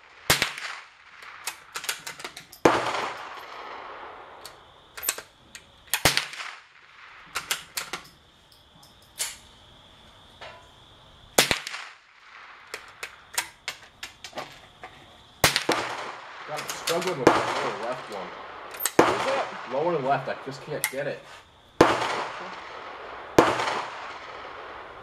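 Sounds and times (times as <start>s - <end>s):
rifle gunshots: 0.0s - 4.4s, 5.9s - 7.8s, 11.4s - 13.0s, 15.4s - 21.2s, 21.8s - 25.0s.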